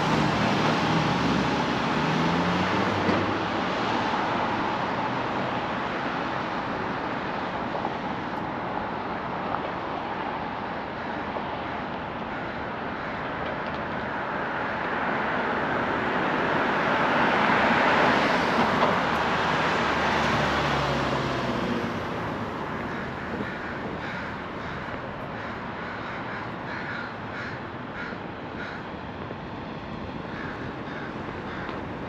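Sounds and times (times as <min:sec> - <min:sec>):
street traffic passing: 0:00.0 - 0:32.0
crow cawing: 0:12.2 - 0:13.3, 0:22.8 - 0:28.9, 0:30.3 - 0:32.0.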